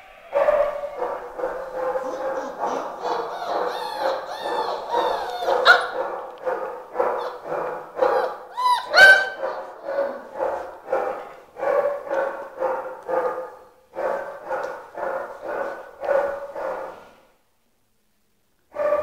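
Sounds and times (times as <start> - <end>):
puppies yapping: 0.0 - 10.7
puppy yelping: 0.3 - 6.2, 7.0 - 10.4.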